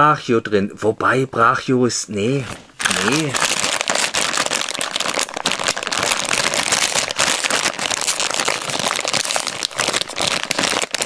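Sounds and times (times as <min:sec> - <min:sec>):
plastic bag crinkling: 0:02.3 - 0:11.0.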